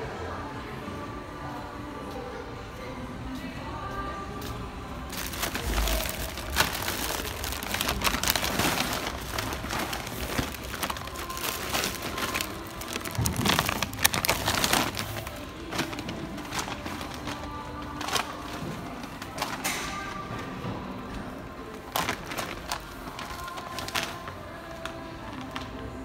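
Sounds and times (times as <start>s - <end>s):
fabric rustling against microphone: 5.1s - 20.3s, 21.7s - 25.7s.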